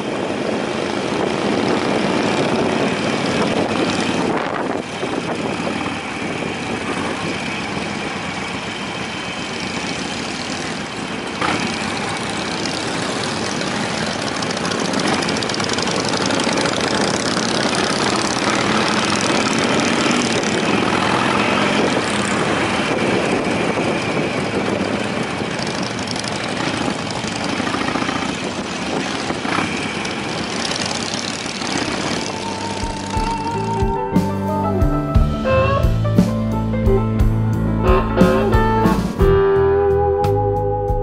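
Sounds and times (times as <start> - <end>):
wind on microphone: 0.0 - 8.9, 14.8 - 34.2
motorcycle engine running: 0.0 - 40.9.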